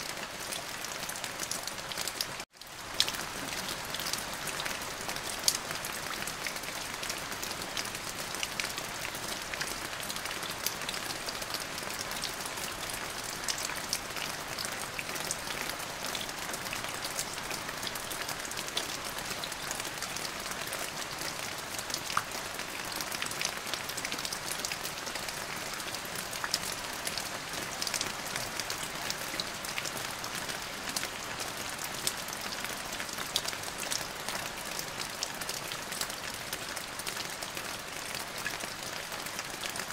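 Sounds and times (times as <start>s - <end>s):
rain falling: 0.0s - 39.9s.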